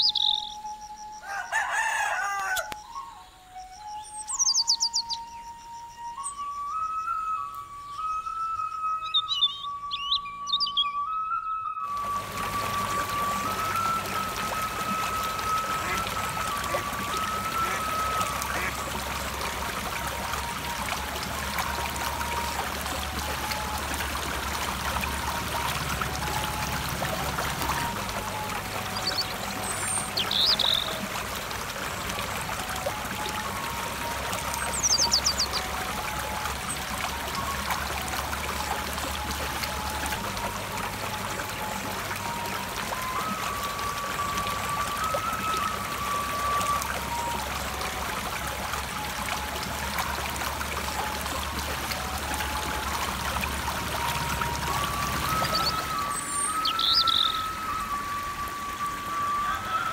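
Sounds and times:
bird chirping and trilling: 0.0s - 11.8s, 27.7s - 31.1s, 34.4s - 35.7s, 54.6s - 57.9s
soft slow background music: 0.0s - 59.9s
stream rushing over stones: 11.8s - 59.9s.

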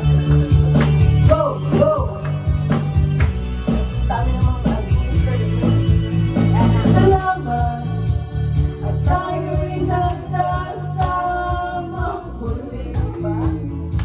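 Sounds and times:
backing track with bass beat: 0.0s - 14.0s
woman and man singing: 6.5s - 8.2s, 8.8s - 14.0s.

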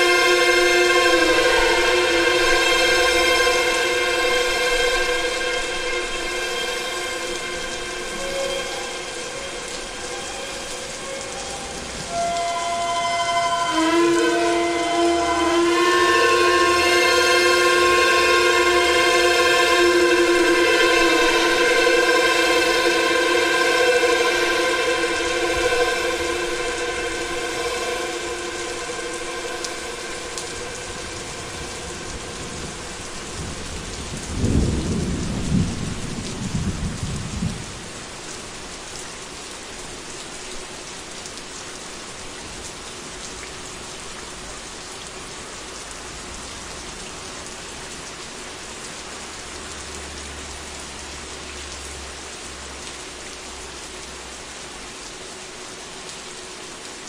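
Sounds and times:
synth drone chord: 0.0s - 11.2s, 12.1s - 33.7s
steady rain hiss: 0.0s - 57.0s
thunder rolling: 20.3s - 37.9s.

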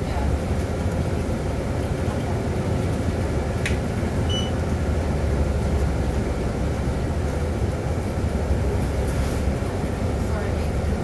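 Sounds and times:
bus engine droning: 0.0s - 11.0s
short high beep: 4.3s - 4.5s.

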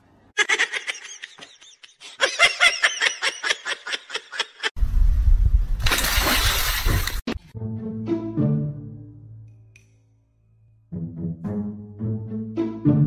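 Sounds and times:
person giggling: 0.4s - 4.7s.

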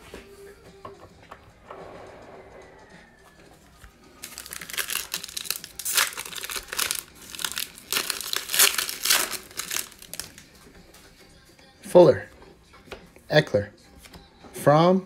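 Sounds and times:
foil wrapper tearing and crinkling: 4.2s - 10.4s.

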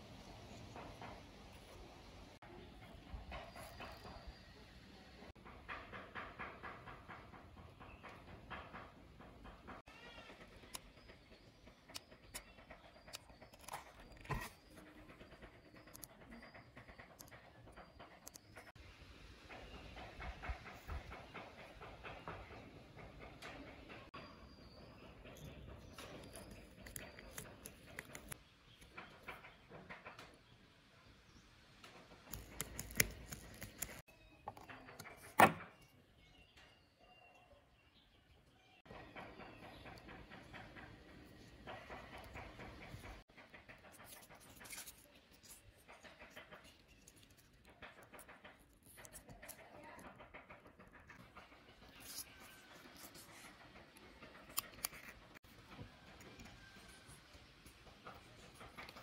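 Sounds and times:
small parts being handled: 41.3s - 59.0s.

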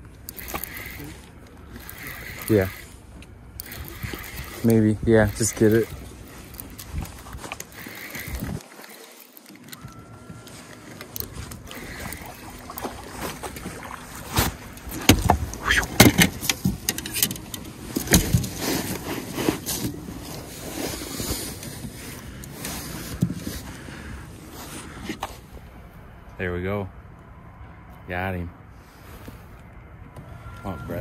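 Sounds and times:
steady background noise: 0.0s - 31.0s
knocks and clatter in boat: 9.9s - 22.2s, 22.9s - 23.7s.

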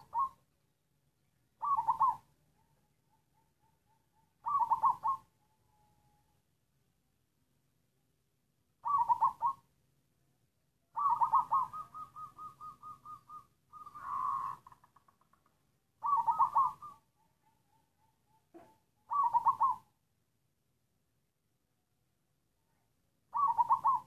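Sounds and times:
dove cooing: 0.0s - 0.4s, 1.6s - 6.1s, 8.8s - 9.7s, 11.0s - 15.4s, 16.0s - 19.9s, 23.3s - 24.0s.

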